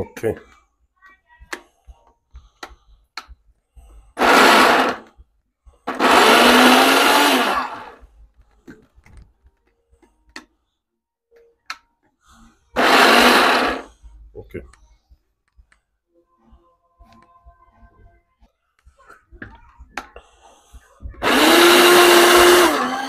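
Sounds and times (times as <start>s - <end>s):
blender grinding: 4.2s - 5.1s, 5.9s - 8.0s, 12.8s - 13.9s, 21.2s - 23.0s.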